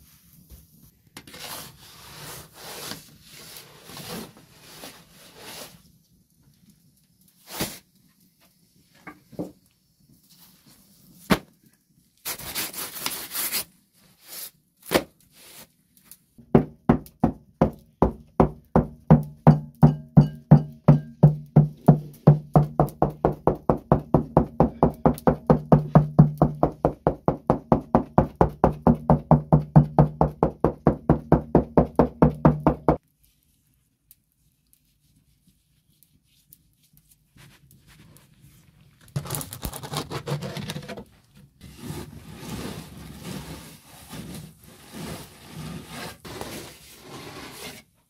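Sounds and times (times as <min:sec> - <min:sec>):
fingertips tapping dough: 0:16.5 - 0:33.0.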